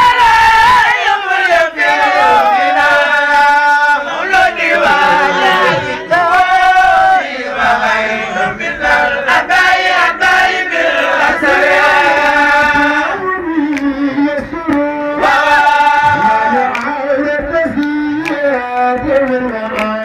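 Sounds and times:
man chanting into a microphone: 4.8 - 6.4, 12.3 - 20.0.

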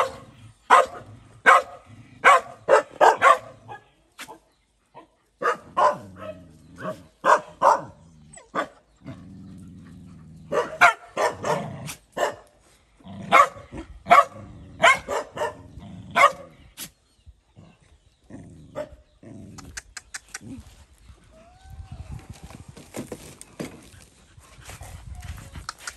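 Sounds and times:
small dog barking: 0.0 - 3.8, 5.4 - 7.9, 8.5 - 8.8, 10.5 - 12.5, 13.3 - 15.6, 16.2 - 16.5.

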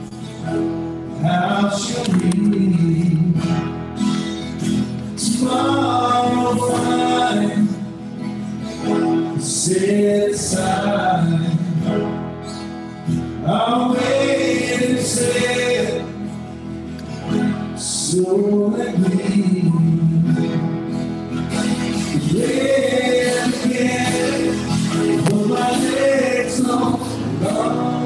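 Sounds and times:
strummed acoustic guitar: 0.0 - 28.0
person singing: 1.2 - 3.7, 5.2 - 8.0, 9.2 - 12.0, 13.4 - 16.3, 17.8 - 20.7, 21.8 - 28.0.

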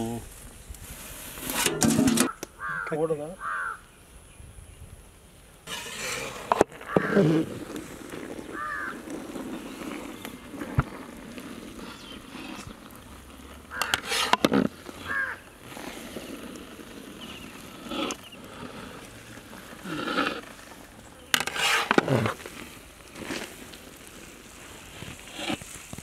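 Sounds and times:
metal ladle scraping steel pot: 1.4 - 2.4, 5.7 - 7.4, 13.7 - 15.1, 21.3 - 22.4
crows cawing: 2.2 - 3.9, 6.8 - 7.3, 8.5 - 9.0, 13.7 - 14.1, 15.0 - 15.5.

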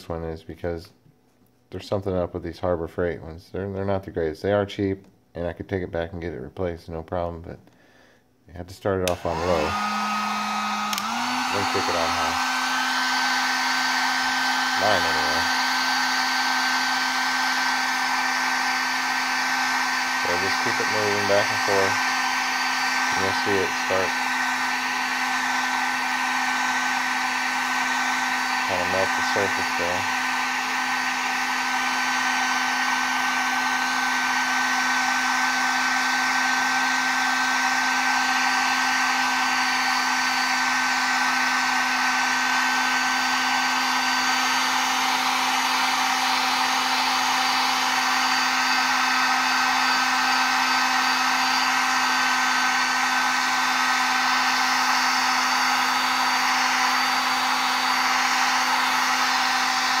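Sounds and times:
heat gun blowing air: 9.0 - 60.0
fan whine: 9.1 - 24.7.

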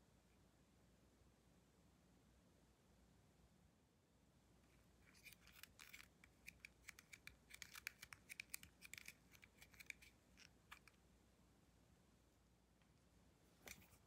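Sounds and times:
faint dry scratches and clicks: 4.6 - 11.0, 13.6 - 14.0.

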